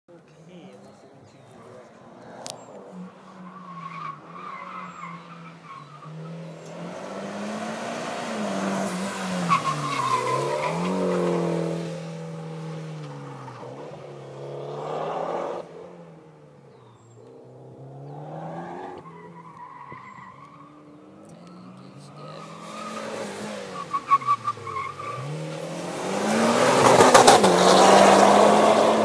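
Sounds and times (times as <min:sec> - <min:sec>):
tires squealing: 0:01.5 - 0:15.6, 0:16.9 - 0:29.0
car engine revving: 0:01.8 - 0:29.0.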